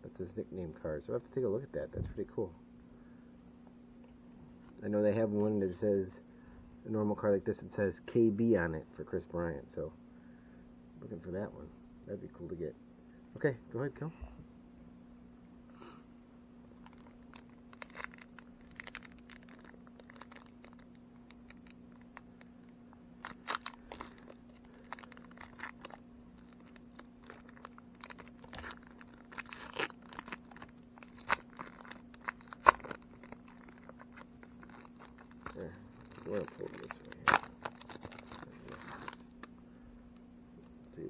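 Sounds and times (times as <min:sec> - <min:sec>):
faint steady hum: 0:00.0 - 0:41.0
wrapper crinkling and tearing: 0:16.8 - 0:22.6, 0:23.2 - 0:39.5.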